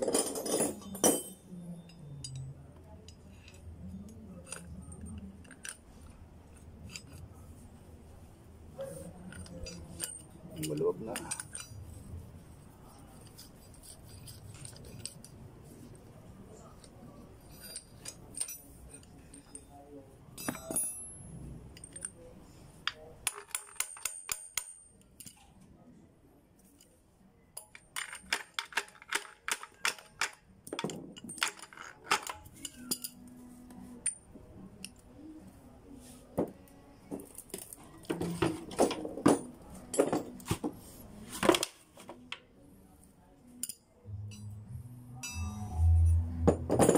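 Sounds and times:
hand tools clinking on metal: 0.0s - 2.4s, 8.8s - 11.9s, 20.4s - 21.2s, 27.6s - 33.3s.

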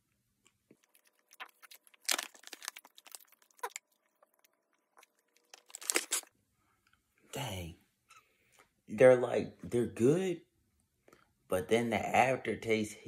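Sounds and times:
plastic snack bag crinkling: 0.7s - 6.3s.

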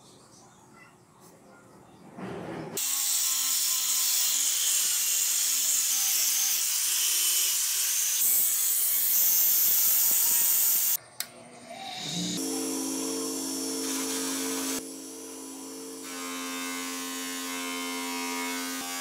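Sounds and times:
grinder wheel hissing on steel: 11.7s - 16.1s
angle grinder motor hum: 11.8s - 19.0s.

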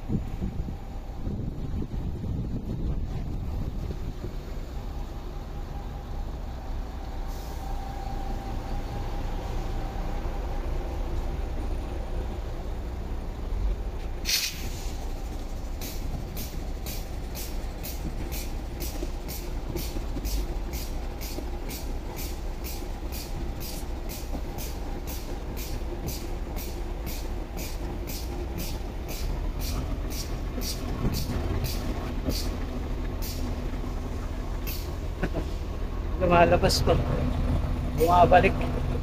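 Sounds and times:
steady low rumble: 0.0s - 39.0s
grease gun pump hiss: 14.2s - 15.2s, 15.8s - 30.9s.

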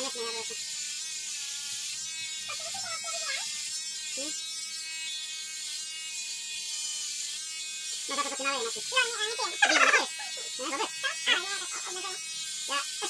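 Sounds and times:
electric shaver buzzing: 0.0s - 13.0s.

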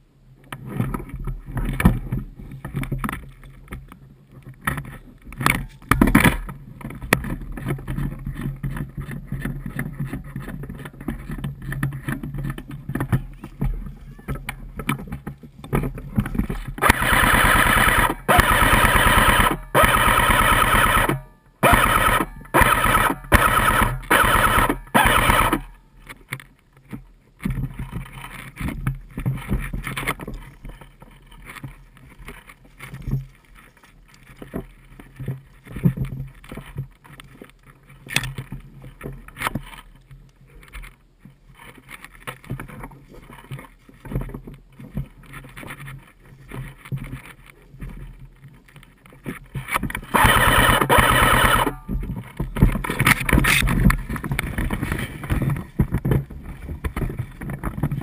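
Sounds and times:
airsoft rifle full-auto bursts: 16.8s - 25.8s, 50.1s - 51.9s
rustling in dry grass: 21.8s - 58.0s.

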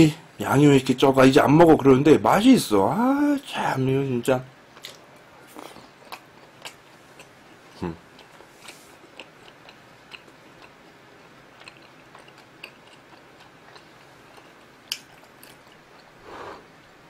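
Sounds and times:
person chewing food: 4.7s - 16.3s.

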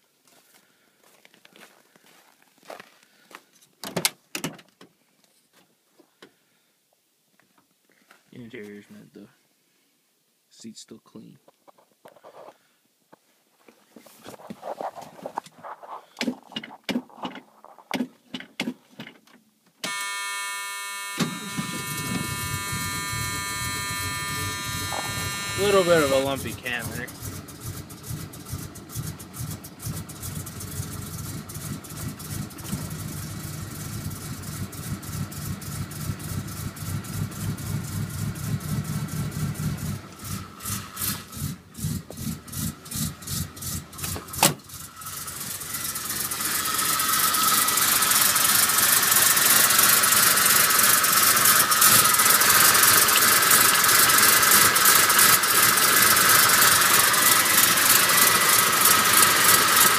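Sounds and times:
engine idling and revving: 20.8s - 59.9s.

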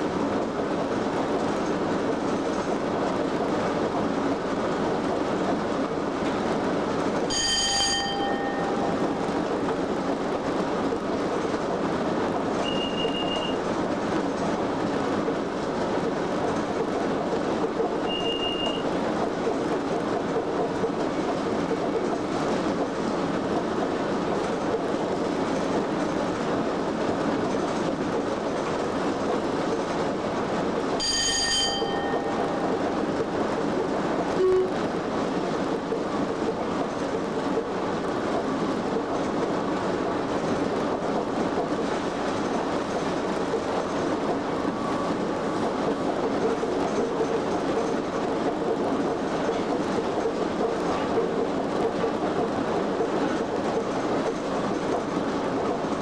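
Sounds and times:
train wheels rumbling on rail: 0.0s - 56.0s
short ringing tone: 7.3s - 8.9s, 12.7s - 13.6s, 18.1s - 18.8s, 31.0s - 32.6s, 34.4s - 34.8s.

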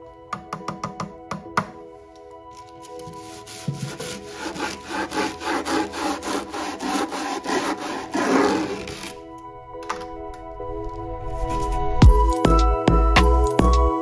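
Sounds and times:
brush scrubbing wood: 3.0s - 9.2s.

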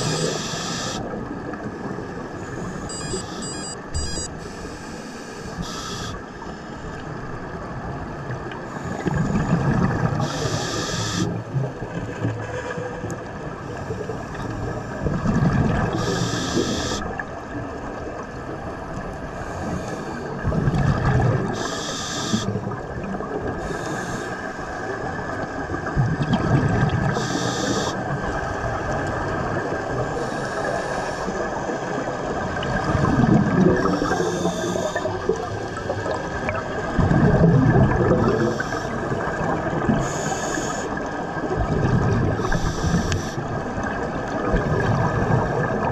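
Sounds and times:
regulator inhale hiss: 0.0s - 1.1s, 4.4s - 6.8s, 10.2s - 11.3s, 16.0s - 17.0s, 19.4s - 20.3s, 21.6s - 22.5s, 23.6s - 24.8s, 27.1s - 28.0s, 30.2s - 31.6s, 33.9s - 35.1s, 38.4s - 39.0s, 40.0s - 41.0s, 42.4s - 43.5s
exhaled air bubbling underwater: 0.0s - 45.9s.

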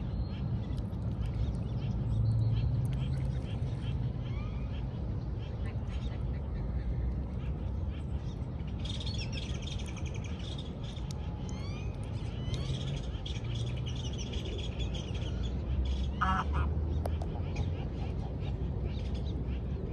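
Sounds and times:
waterfowl nasal call: 16.2s - 16.7s.

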